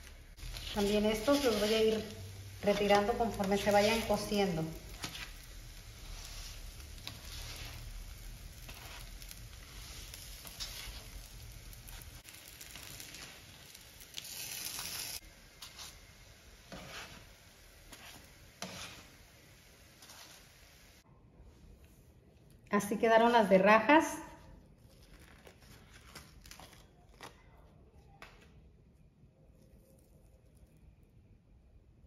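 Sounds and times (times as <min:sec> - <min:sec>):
food sizzling on a griddle: 0:00.0 - 0:21.0
spatula scraping griddle: 0:00.4 - 0:20.7.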